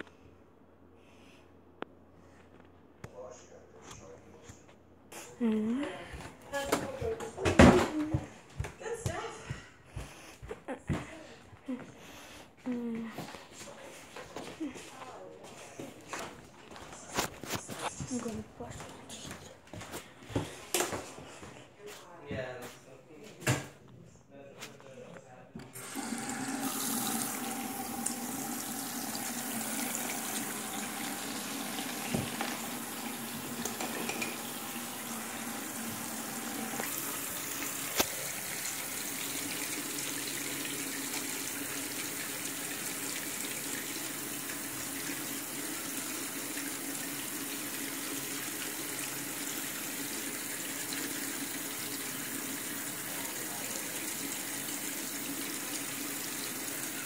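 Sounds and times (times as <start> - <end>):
tap water running into sink: 25.7 - 57.0.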